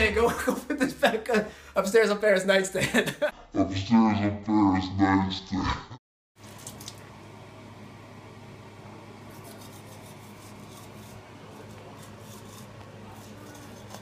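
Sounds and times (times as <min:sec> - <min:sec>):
toothbrush scrubbing teeth: 0:09.3 - 0:14.0.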